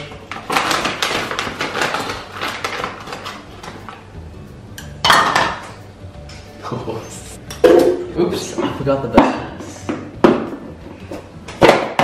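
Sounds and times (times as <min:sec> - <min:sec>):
frozen fruit clattering in plastic scoop: 0:00.2 - 0:03.4
plastic bag rustling: 0:00.2 - 0:03.9.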